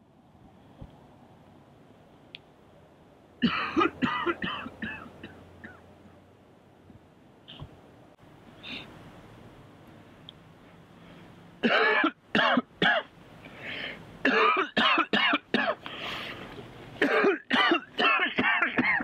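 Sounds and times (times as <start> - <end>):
man coughing: 3.4 - 5.8, 11.6 - 13.1, 14.2 - 15.8, 17.0 - 19.0.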